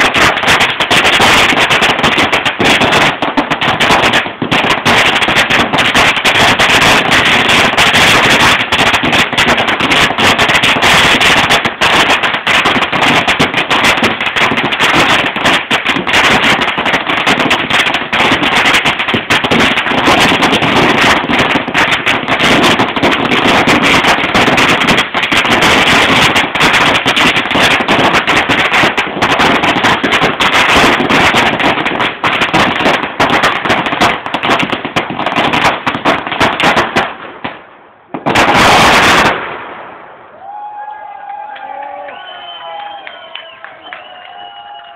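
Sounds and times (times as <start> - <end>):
firecrackers crackling: 0.0 - 44.9.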